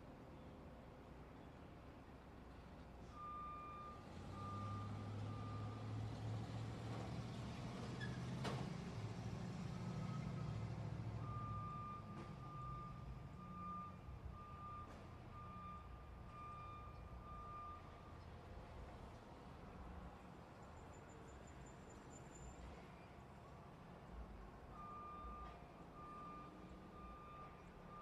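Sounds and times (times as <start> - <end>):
reversing alarm beeping: 3.2 - 5.9, 11.2 - 18.1, 24.7 - 28.0.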